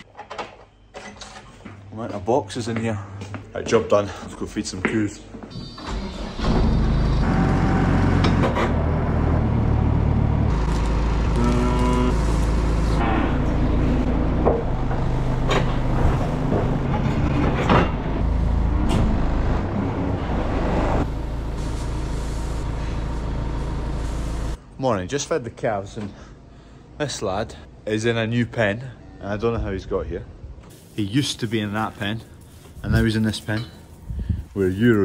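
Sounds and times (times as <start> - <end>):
diesel engine running: 6.2 - 24.6.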